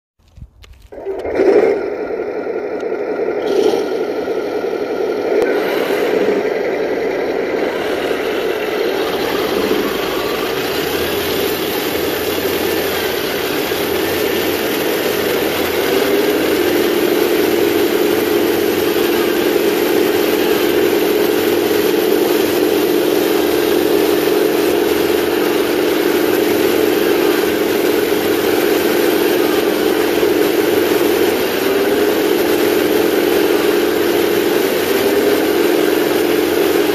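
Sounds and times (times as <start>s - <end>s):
toy drive gears and tracks: 0.2s - 36.9s
simulated tank engine from speaker: 1.0s - 36.9s.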